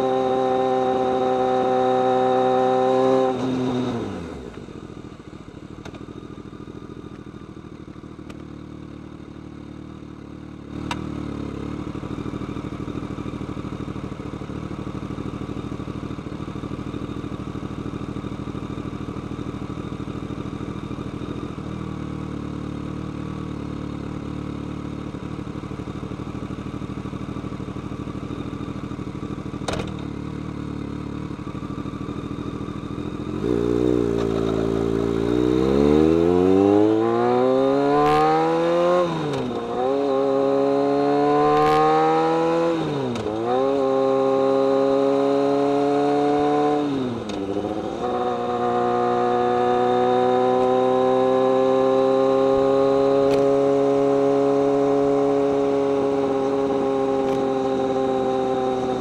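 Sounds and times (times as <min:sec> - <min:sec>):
motorcycle engine and exhaust: 0:00.0 - 0:59.0
click: 0:53.3 - 0:53.5.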